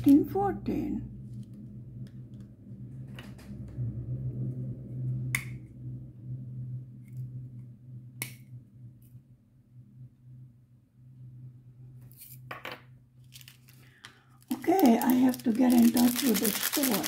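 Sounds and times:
steady low hum: 0:00.0 - 0:12.4
plastic packets clicking: 0:13.3 - 0:17.0.

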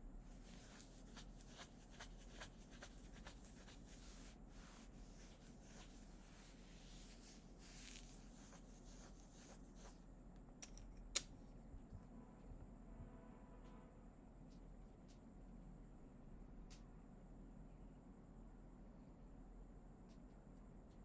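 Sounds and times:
scratchy rustles: 0:00.3 - 0:10.0
small clicks: 0:10.4 - 0:11.3.

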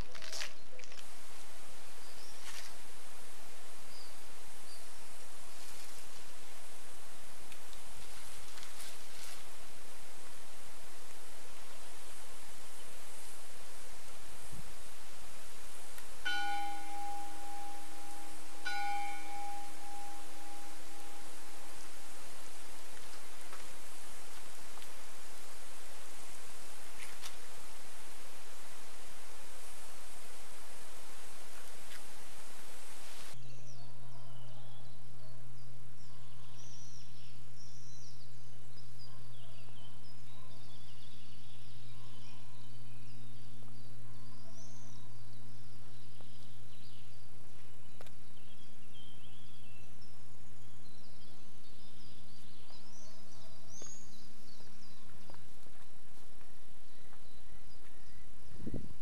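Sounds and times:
small birds chirping: 0:00.0 - 0:59.0
lawn sprinkler spray hissing: 0:00.9 - 0:16.3, 0:19.6 - 0:33.4
steady low hum: 0:01.1 - 0:33.4.

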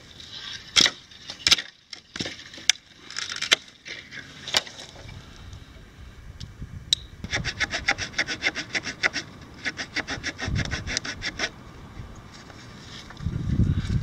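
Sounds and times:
saw cutting dry branch: 0:07.2 - 0:11.6.

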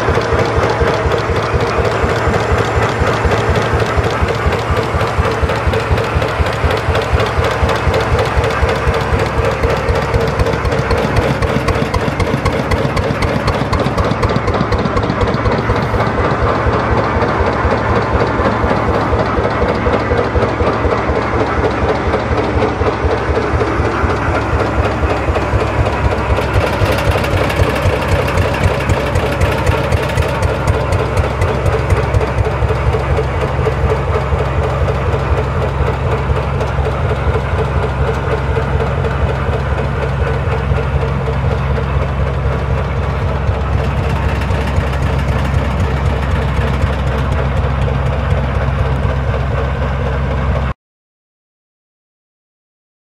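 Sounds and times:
gas engine running: 0:00.0 - 0:50.7.

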